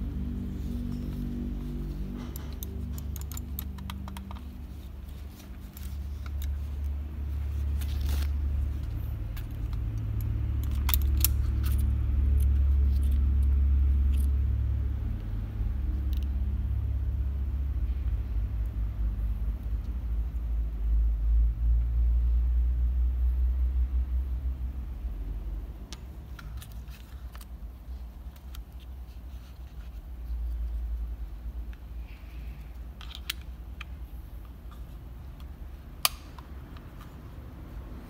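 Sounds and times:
plastic mouse clicks: 0:02.4 - 0:04.6.

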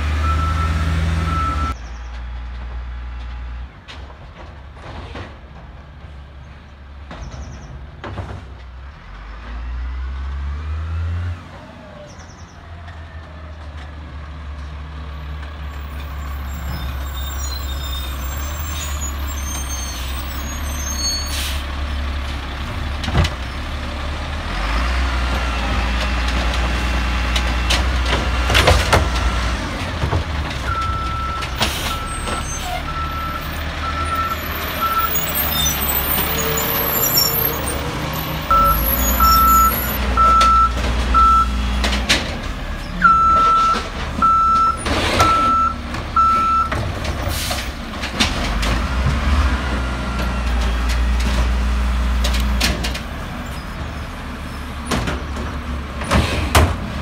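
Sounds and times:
engine revving: 0:00.0 - 0:01.8, 0:48.2 - 0:52.8
diesel engine running: 0:11.4 - 0:57.0.

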